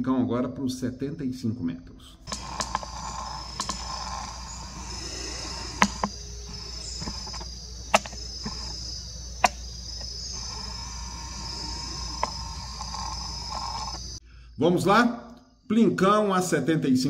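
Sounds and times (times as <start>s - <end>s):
insects chirring: 2.2s - 14.8s
sharp clicks: 2.3s - 14.2s.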